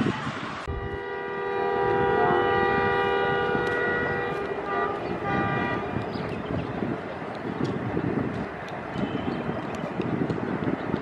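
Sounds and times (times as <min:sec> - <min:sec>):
low rumble of train: 0:00.0 - 0:11.0
locomotive horn blasts: 0:00.7 - 0:06.3, 0:08.9 - 0:09.6.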